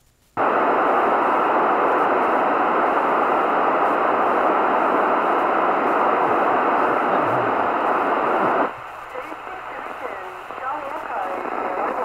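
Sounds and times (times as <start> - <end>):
radio static hiss: 0.0 - 12.0.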